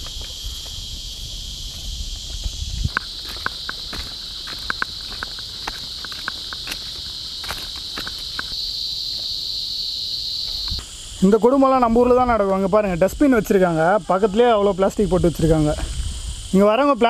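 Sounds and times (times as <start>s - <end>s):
footsteps on gravel: 0.0s - 9.4s
high-pitched insect drone: 0.0s - 17.0s.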